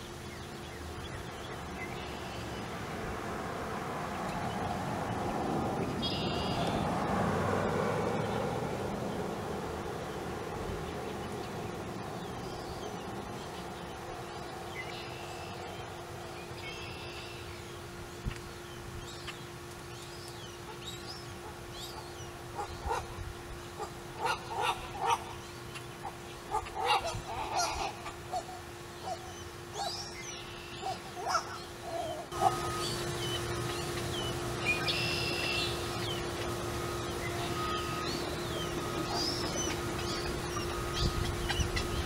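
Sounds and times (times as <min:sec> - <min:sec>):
steady low hum: 0:00.0 - 0:42.0
birds giving short repeated calls: 0:20.3 - 0:42.0.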